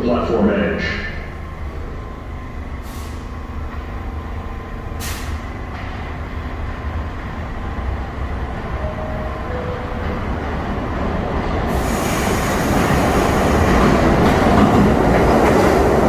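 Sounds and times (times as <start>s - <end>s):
subway train rumbling in tunnel: 0.0s - 16.0s.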